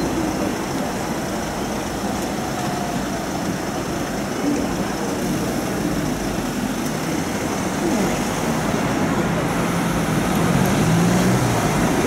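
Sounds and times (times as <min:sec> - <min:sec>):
tram rumbling: 0:00.0 - 0:12.0.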